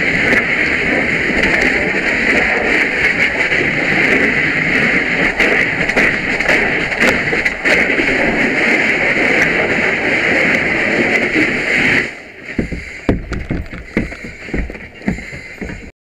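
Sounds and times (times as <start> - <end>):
fire hose water hissing: 0.0 - 15.9
low knocks: 12.5 - 15.9.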